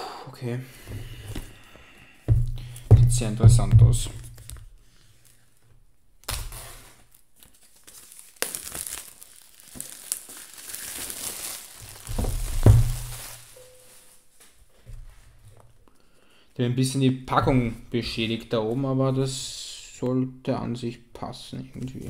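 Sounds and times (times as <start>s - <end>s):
dull knocks of box handling: 2.3s - 4.5s, 12.1s - 13.2s
packaging being torn and crinkled: 6.2s - 14.1s.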